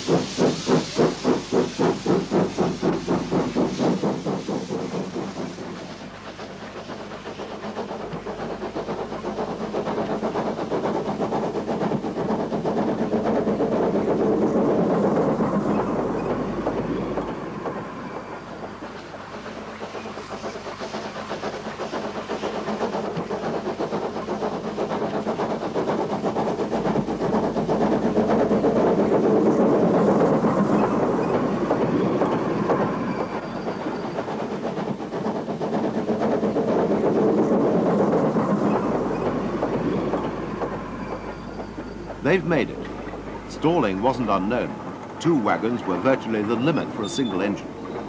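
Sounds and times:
steam locomotive exhaust beating: 0:00.0 - 0:48.0.

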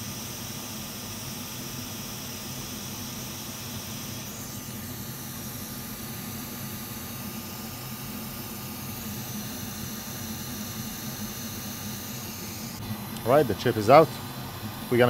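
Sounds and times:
hot air station hissing: 0:00.0 - 0:15.0
low fan hum: 0:04.2 - 0:15.0.

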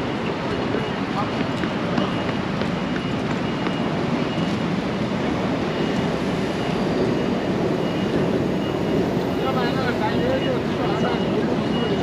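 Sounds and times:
traffic rumble: 0:00.0 - 0:12.0
faint short high beeps: 0:09.6 - 0:12.0.

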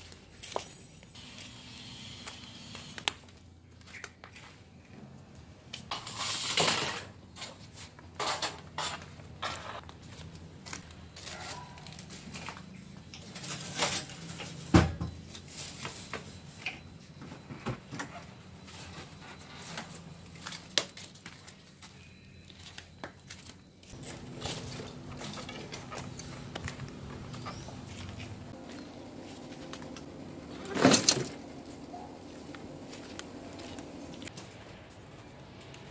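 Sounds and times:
footsteps on rubble and twigs: 0:00.0 - 0:01.2, 0:08.9 - 0:14.3, 0:19.8 - 0:35.9.

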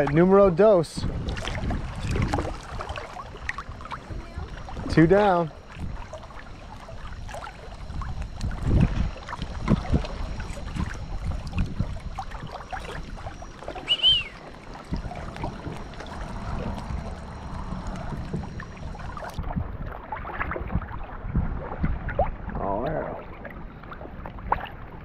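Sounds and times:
water splashing and sloshing: 0:00.0 - 0:25.0
short high chirp: 0:13.8 - 0:14.4.

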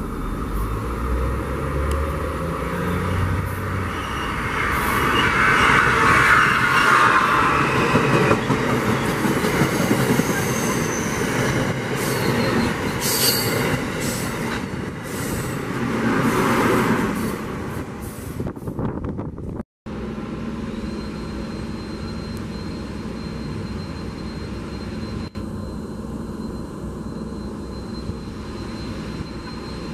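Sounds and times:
electric locomotive hum and whine: 0:00.0 - 0:29.9
train wheels rushing on rails: 0:01.8 - 0:19.4.

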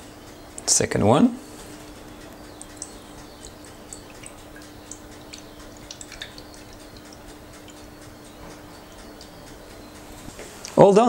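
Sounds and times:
liquid trickling: 0:01.6 - 0:10.3
small drips: 0:01.6 - 0:10.3.

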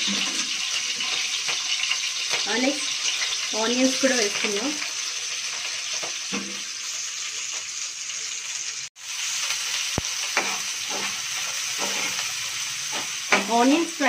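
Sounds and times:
spatula scraping a pan: 0:00.0 - 0:03.5, 0:09.4 - 0:13.5
onions sizzling in oil: 0:00.0 - 0:14.0.

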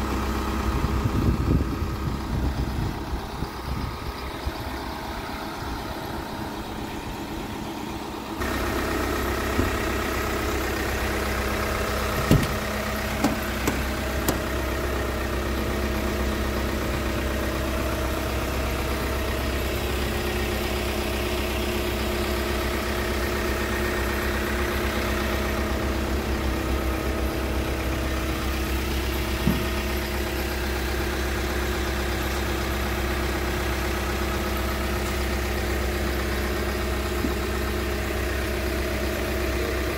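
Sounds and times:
diesel engine idling: 0:00.0 - 0:39.9
short knocks: 0:12.1 - 0:14.5, 0:29.4 - 0:29.8.

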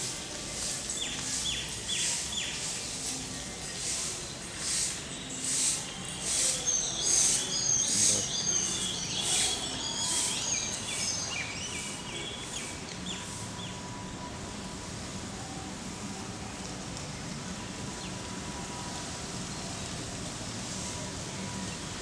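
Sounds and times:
birds chirping: 0:04.6 - 0:13.8.

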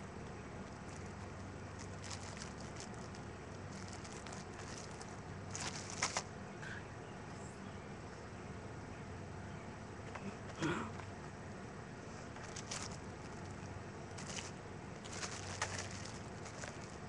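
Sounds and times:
steady low hum: 0:00.0 - 0:17.0
plastic packet crinkling: 0:00.5 - 0:06.3, 0:12.4 - 0:17.0.

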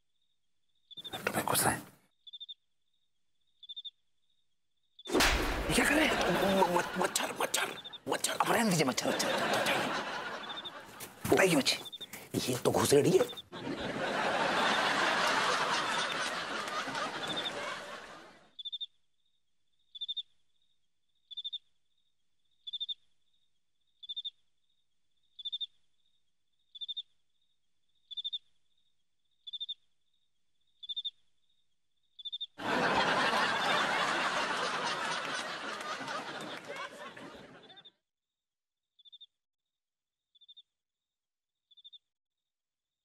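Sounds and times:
cricket chirping: 0:00.0 - 0:13.6, 0:18.6 - 0:32.6, 0:39.0 - 0:39.3, 0:41.7 - 0:42.0
studio audience laughter: 0:05.7 - 0:07.9, 0:09.0 - 0:11.2, 0:13.5 - 0:18.5, 0:32.6 - 0:38.0.

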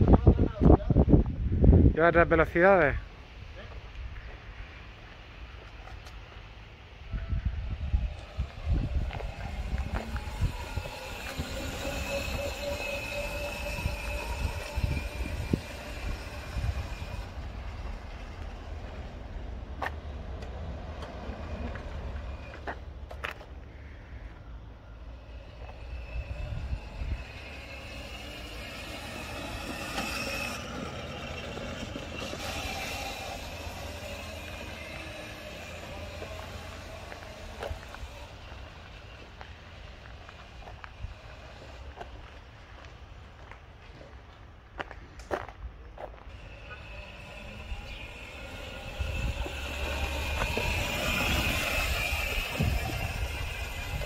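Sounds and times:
low rolling rumble: 0:07.0 - 0:23.1, 0:24.6 - 0:42.5, 0:46.3 - 0:54.0
electric motor whining: 0:07.1 - 0:19.5, 0:24.9 - 0:42.3, 0:46.3 - 0:54.0.

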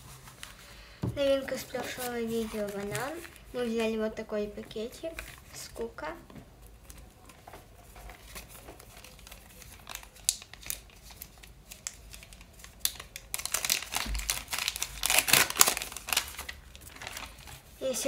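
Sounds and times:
paper rustling: 0:00.0 - 0:04.0, 0:06.5 - 0:18.0
paper crinkling and tearing: 0:01.3 - 0:03.8, 0:06.6 - 0:17.9.

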